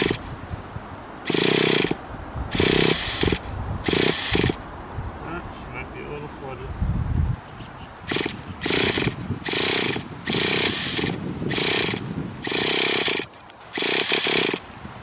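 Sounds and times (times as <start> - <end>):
small engine cranking without firing: 0.0 - 0.3, 1.3 - 4.6, 8.1 - 14.6.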